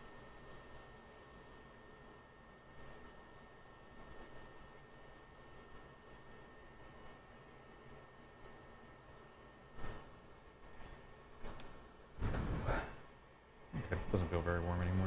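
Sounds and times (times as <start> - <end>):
rapid scratching strokes: 2.7 - 8.9.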